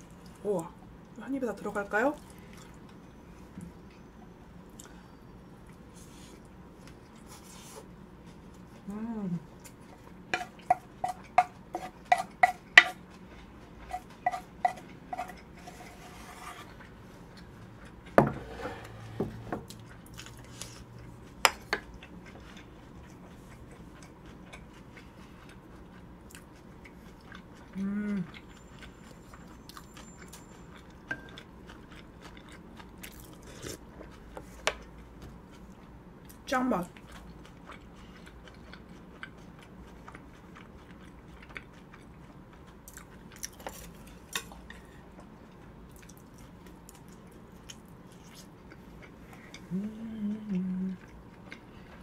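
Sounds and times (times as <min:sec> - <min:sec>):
wooden spoon scraping a bowl: 0:10.4 - 0:12.9, 0:13.9 - 0:16.8, 0:18.3 - 0:19.6
faint chewing: 0:19.7 - 0:52.0.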